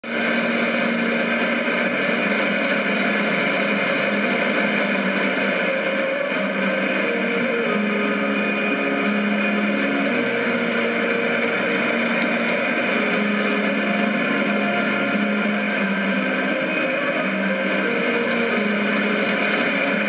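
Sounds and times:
faint humming tones: 0.0s - 20.0s
radio static hiss: 0.0s - 20.0s.

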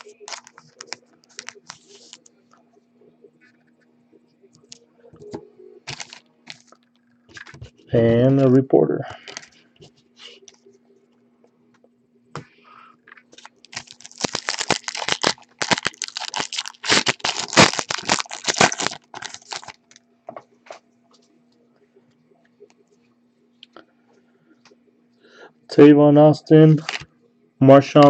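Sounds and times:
foil wrapper crackling: 0.0s - 2.2s, 5.9s - 6.8s, 13.3s - 20.0s.

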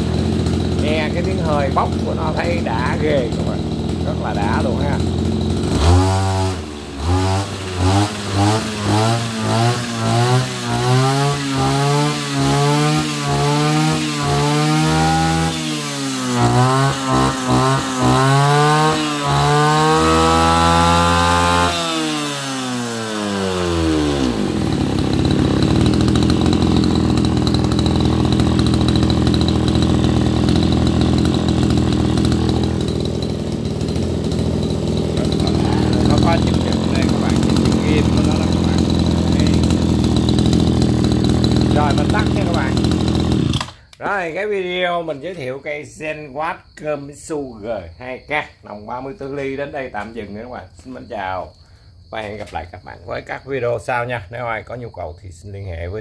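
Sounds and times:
brush cutter engine revving: 0.0s - 44.2s.

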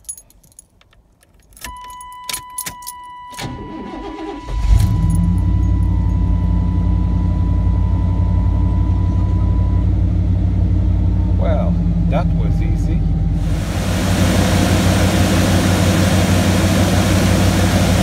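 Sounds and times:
keys rattling in ignition: 0.0s - 6.3s
engine cranking and idling: 3.4s - 12.6s, 13.2s - 18.0s.

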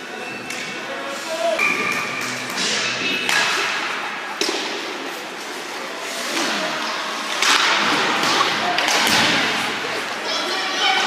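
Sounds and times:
hockey sticks and puck knocking: 1.6s - 5.1s, 6.2s - 9.7s.

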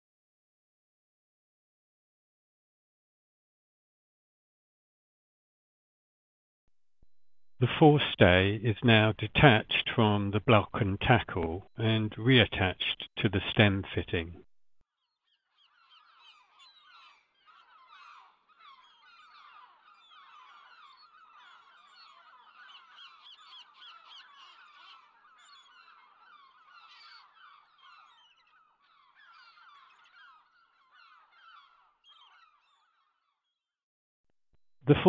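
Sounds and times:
flock of birds chattering: 15.0s - 33.5s.

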